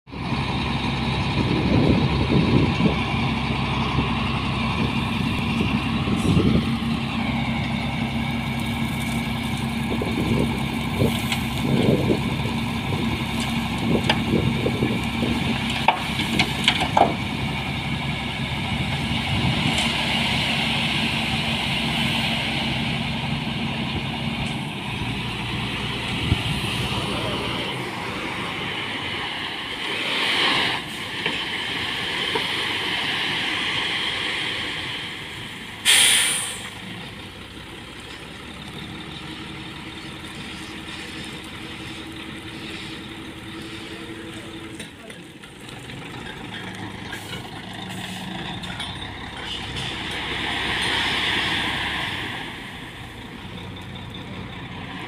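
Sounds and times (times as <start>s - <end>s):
diesel truck engine running: 0.1s - 55.0s
gravel sliding and pouring: 8.2s - 16.6s, 40.0s - 44.5s, 49.8s - 53.1s
metal clanks: 44.6s - 51.0s.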